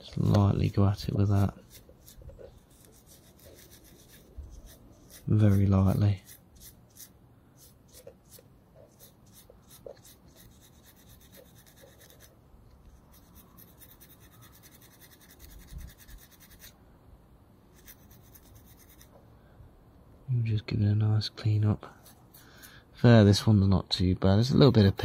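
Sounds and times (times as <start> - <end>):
emery cloth scratching metal: 0.0 - 12.3, 13.0 - 16.8, 17.7 - 19.2.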